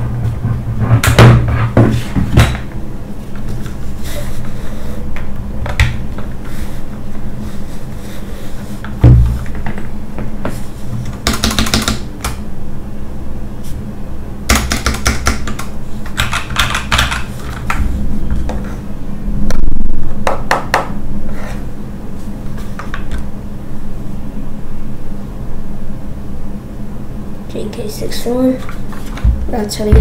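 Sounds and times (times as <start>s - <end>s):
low thump: 9.0s - 9.4s
mechanical keyboard typing: 14.5s - 17.3s.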